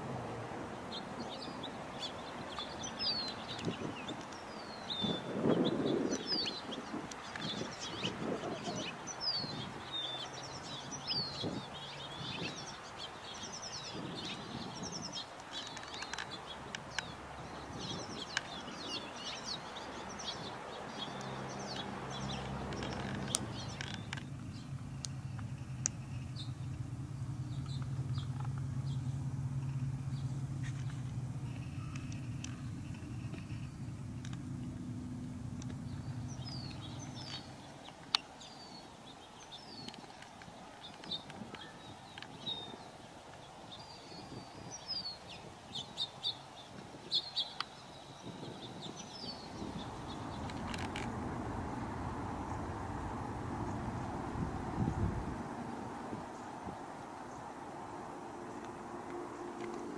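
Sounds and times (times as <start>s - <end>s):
finches twittering and chirping: 0.9s - 34.8s, 35.5s - 55.1s
steady low hum: 21.5s - 37.7s.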